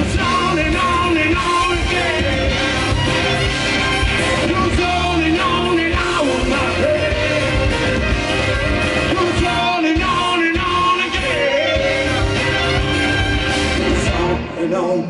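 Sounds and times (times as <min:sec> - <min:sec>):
person singing: 0:00.0 - 0:03.2, 0:04.4 - 0:08.0, 0:09.0 - 0:12.6
rock band playing: 0:00.0 - 0:15.0.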